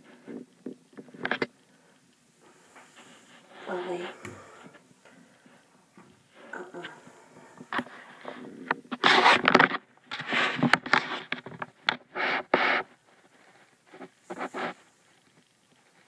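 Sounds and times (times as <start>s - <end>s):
rabbits scratching and scrambling: 6.3s - 16.0s.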